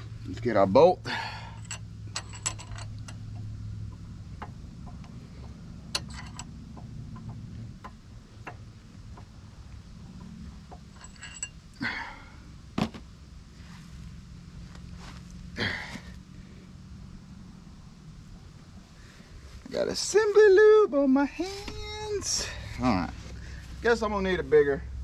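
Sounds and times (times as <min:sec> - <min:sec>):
metallic clicks of camshaft: 0:01.6 - 0:11.6.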